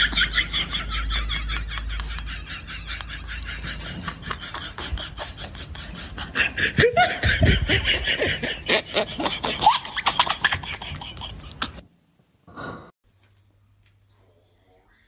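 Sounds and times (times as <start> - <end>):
human laughter: 0.0 - 11.8.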